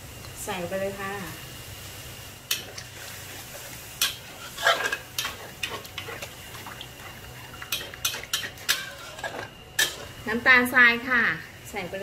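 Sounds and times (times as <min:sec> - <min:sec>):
metal spatula scraping a wok: 0:02.6 - 0:06.4, 0:07.0 - 0:10.2.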